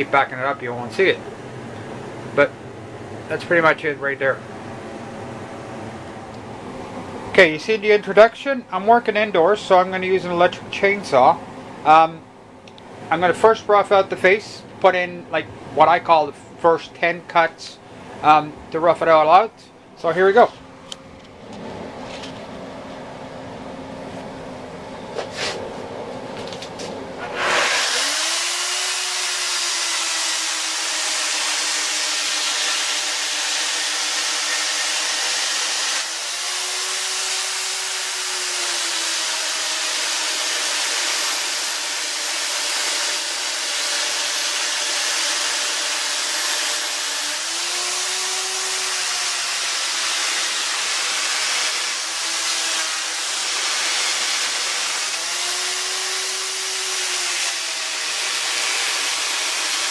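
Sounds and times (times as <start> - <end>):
electric chainsaw cutting log: 27.2 - 59.9.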